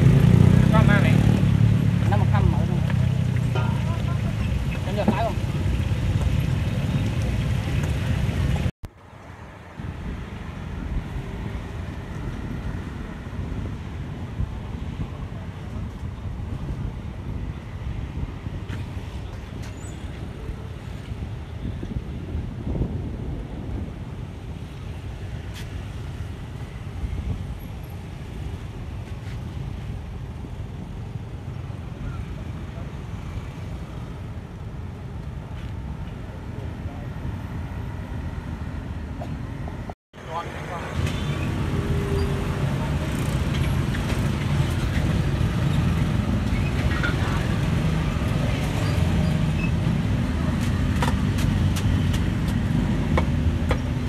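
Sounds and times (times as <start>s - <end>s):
wind rumbling on microphone: 0.0s - 39.9s
faint road traffic: 0.0s - 54.0s.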